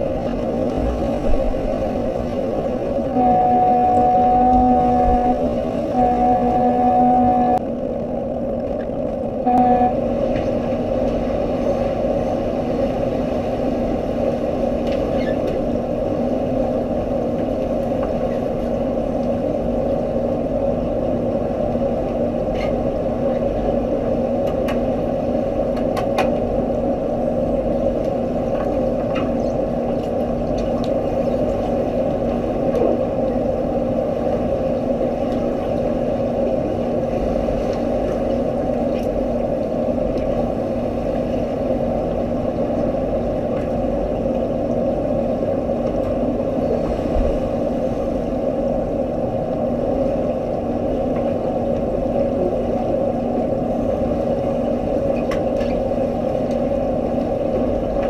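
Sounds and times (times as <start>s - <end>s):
underwater drone: 0.0s - 58.0s
brief tone: 3.1s - 7.6s, 9.5s - 10.0s.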